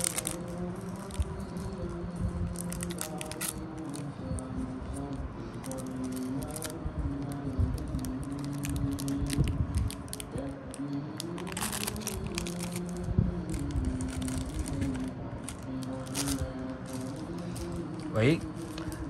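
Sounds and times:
light background music: 0.0 - 19.0
card pack crinkling: 11.2 - 19.0
paper rustle: 11.2 - 19.0.

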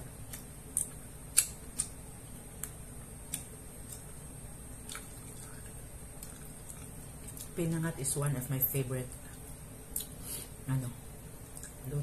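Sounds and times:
low room hum: 0.0 - 12.0
soft eating clicks: 0.1 - 7.8, 11.4 - 12.0.

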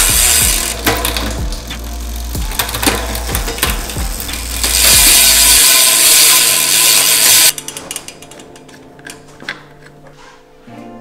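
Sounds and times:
bicycle hub ratcheting: 0.0 - 9.2.

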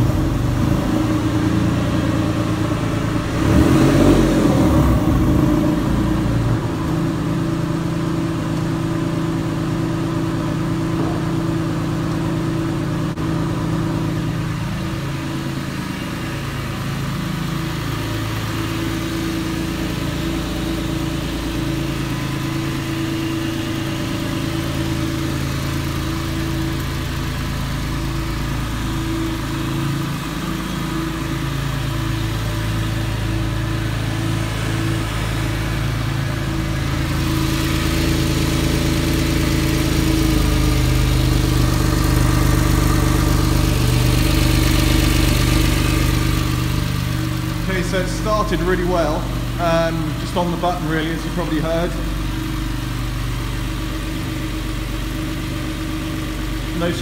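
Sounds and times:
car engine idling: 0.0 - 57.0.

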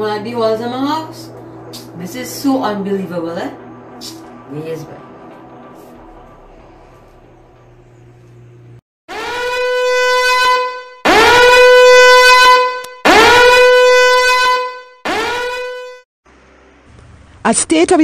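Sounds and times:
horn-like tone blasts: 0.6 - 7.4, 9.1 - 16.0.

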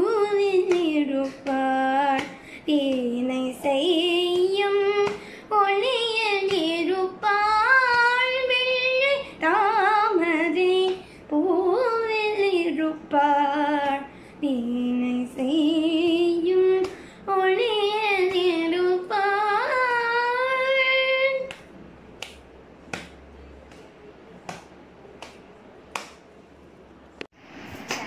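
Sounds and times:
girl singing unaccompanied: 0.0 - 21.6
hand claps: 0.3 - 3.2, 4.3 - 5.3, 21.4 - 26.3.

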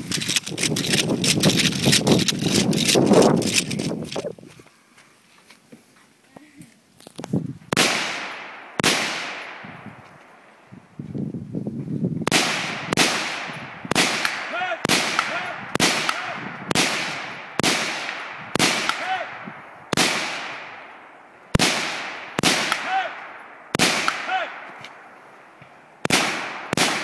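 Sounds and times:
rifle shots echoing: 7.7 - 10.5, 12.3 - 25.2, 26.0 - 27.0.

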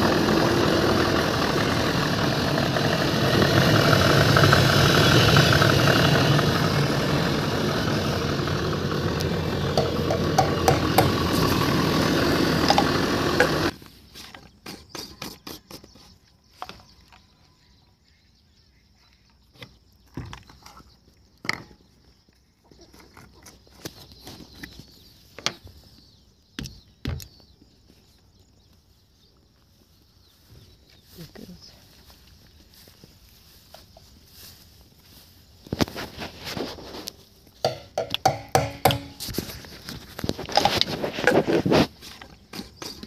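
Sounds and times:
tractor engine running: 0.0 - 13.8, 37.6 - 43.0
knocks and clicks: 9.2 - 11.3, 37.6 - 39.2.

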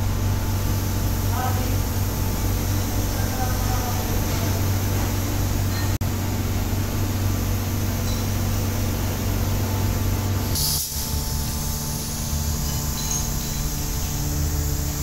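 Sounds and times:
steady low hum: 0.0 - 15.0
spray gun hissing: 10.5 - 12.7.

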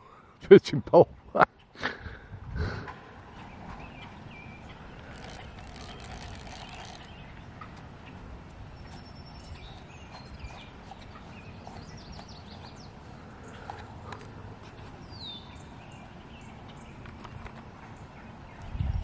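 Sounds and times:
birds chirping: 0.0 - 19.0
steady outdoor hiss: 0.0 - 19.0
fishing reel clicking: 5.0 - 7.1.

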